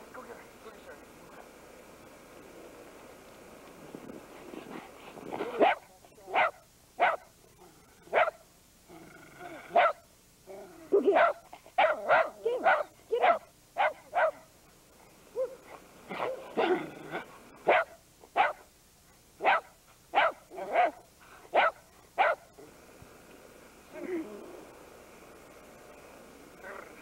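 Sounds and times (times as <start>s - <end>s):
dog barking: 5.4s - 7.3s, 8.1s - 8.4s, 9.7s - 10.0s, 11.0s - 14.5s, 17.6s - 18.7s, 19.4s - 22.5s.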